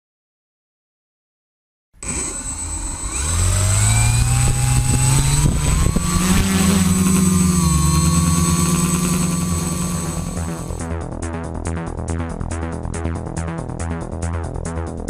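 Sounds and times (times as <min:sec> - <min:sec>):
quadcopter motors and propellers: 0:02.0 - 0:10.8.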